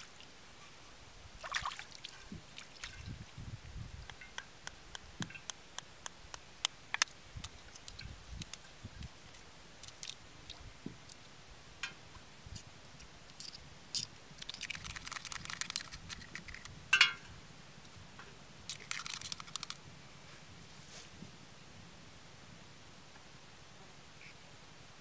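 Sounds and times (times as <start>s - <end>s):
eggshell crunching and clicking: 4.1s - 8.6s, 9.8s - 11.2s, 13.3s - 16.7s, 18.7s - 19.8s.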